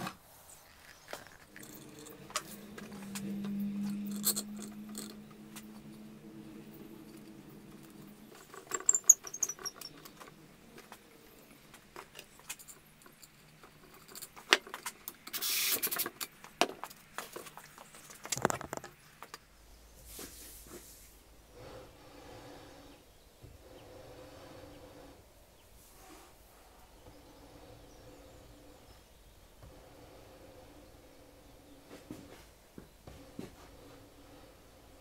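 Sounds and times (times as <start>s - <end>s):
low steady hum: 0.2s - 14.5s
wooden parts clicking and knocking: 0.6s - 19.4s
short hiss: 15.3s - 16.0s.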